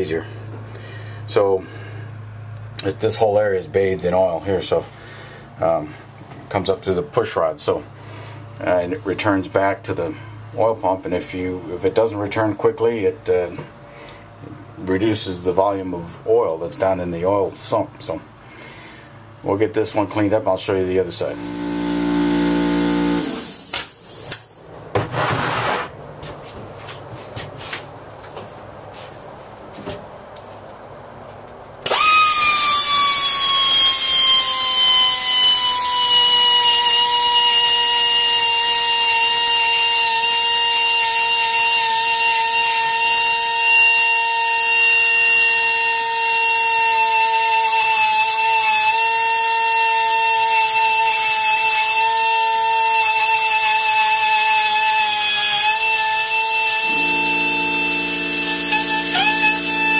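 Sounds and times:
grinder whining: 21.2s - 23.8s, 31.8s - 59.9s.

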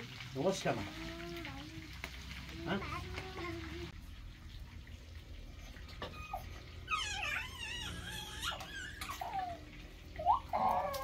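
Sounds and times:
toddler squeaky cries: 6.0s - 9.6s, 10.2s - 11.0s
toddler whimpering: 6.0s - 11.0s.

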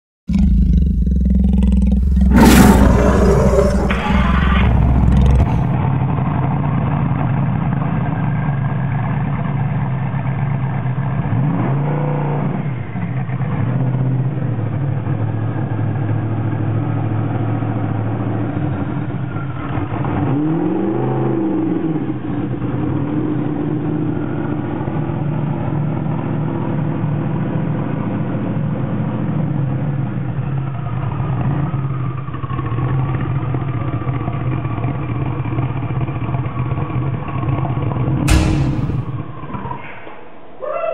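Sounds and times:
roaring sound effect: 0.3s - 5.9s, 38.3s - 39.6s
car engine idling and revving: 3.4s - 38.7s.

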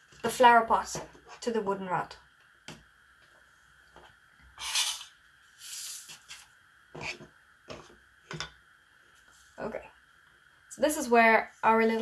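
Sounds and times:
objects tapping on a tabletop: 7.0s - 8.6s.

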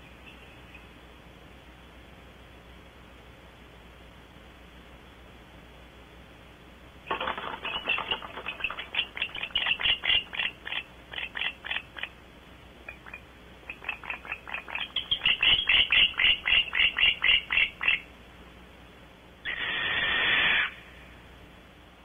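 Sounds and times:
animal chirping rapidly: 7.1s - 12.2s, 12.8s - 18.1s, 19.4s - 20.9s.

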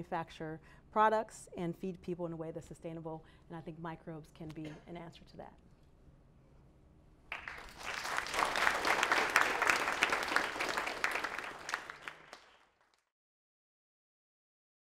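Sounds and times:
audience applauding: 7.3s - 13.1s.

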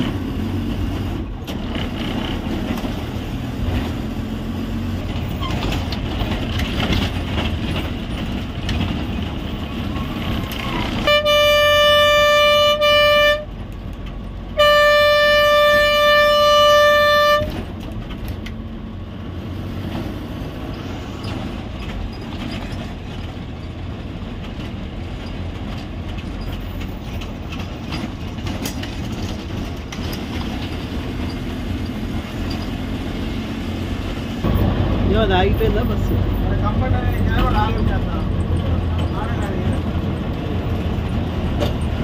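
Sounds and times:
bus engine and road noise: 0.0s - 42.0s
bus horn blasts: 10.6s - 13.6s, 14.5s - 17.7s.

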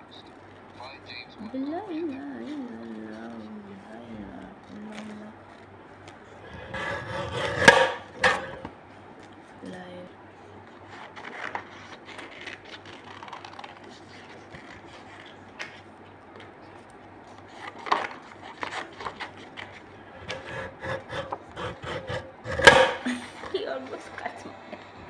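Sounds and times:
paper cutter blade cutting paper: 6.4s - 8.7s, 17.4s - 23.2s
paper rustling and tapping: 11.1s - 20.4s.

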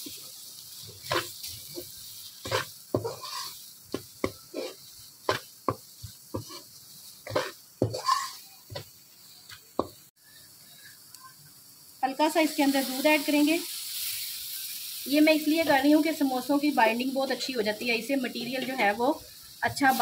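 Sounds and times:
faint oil sizzle: 0.0s - 20.0s
metal spoon scraping a pan: 1.0s - 8.9s.

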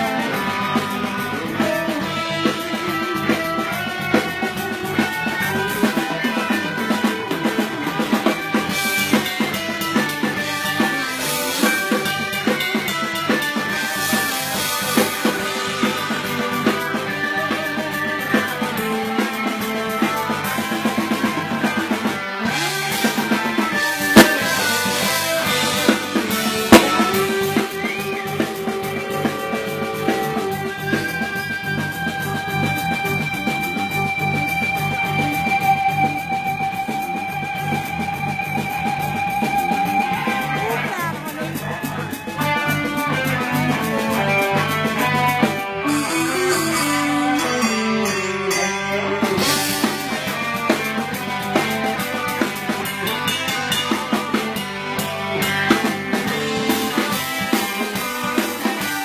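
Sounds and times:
rock band playing: 0.0s - 59.0s
sharp drum hits: 24.2s - 27.5s.

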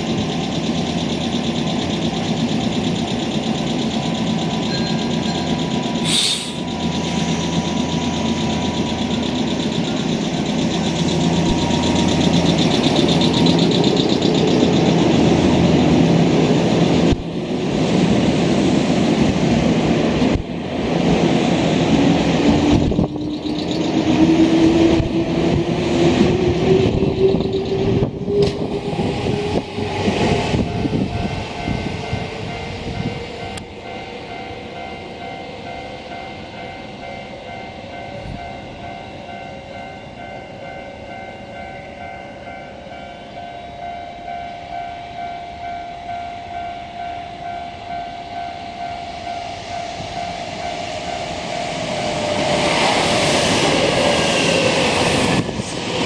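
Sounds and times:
train motor whine rising: 0.0s - 20.4s, 21.1s - 36.4s, 49.1s - 56.0s
electric train rolling past: 0.0s - 56.0s.

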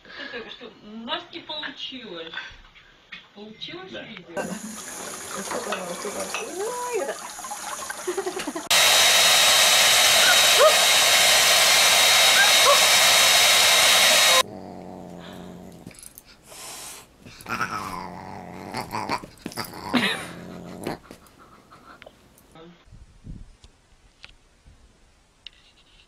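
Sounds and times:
hair dryer blowing: 8.4s - 14.5s
animal vocal sounds: 14.3s - 22.2s.

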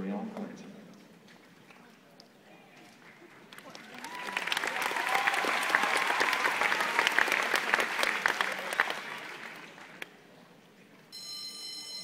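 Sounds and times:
crowd applauding: 3.1s - 10.1s.

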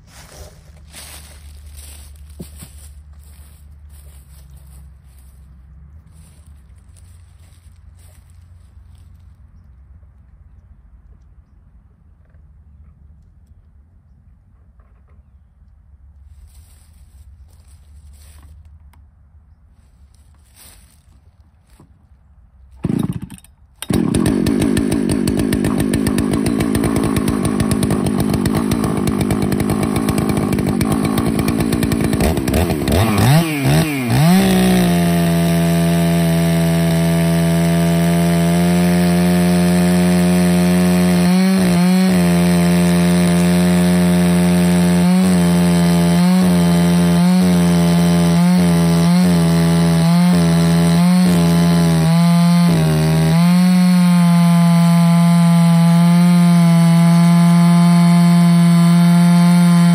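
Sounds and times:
chainsaw running and cutting log: 0.8s - 5.5s, 6.1s - 9.3s, 20.5s - 21.0s, 22.8s - 59.9s
chainsaw pull start: 22.7s - 59.9s.

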